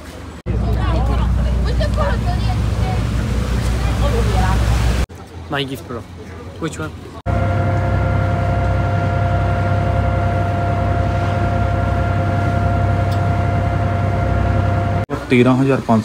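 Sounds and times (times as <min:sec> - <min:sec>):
ship engines droning: 0:00.0 - 0:16.0
higher hums: 0:07.3 - 0:15.0.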